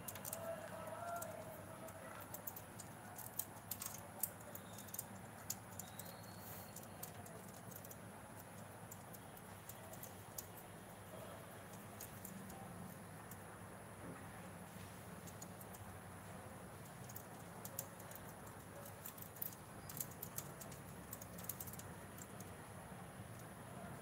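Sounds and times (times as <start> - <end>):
bird claws and beak tapping plastic: 0.0 - 10.8, 11.6 - 13.4, 16.7 - 22.6.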